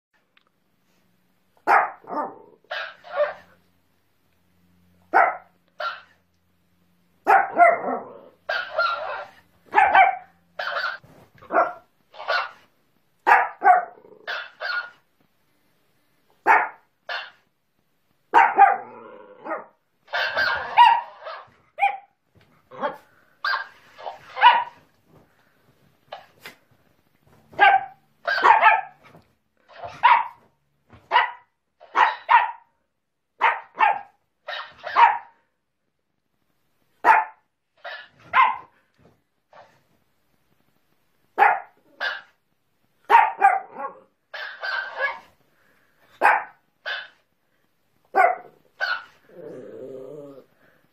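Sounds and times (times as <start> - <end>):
small dog barking: 1.6 - 3.5, 5.1 - 6.2, 7.2 - 12.6, 13.2 - 15.0, 16.4 - 17.4, 18.3 - 24.8, 27.5 - 29.1, 29.7 - 30.4, 31.1 - 32.7, 33.4 - 35.4, 37.0 - 38.7, 41.4 - 42.4, 43.0 - 45.3, 46.2 - 47.2, 48.1 - 49.2.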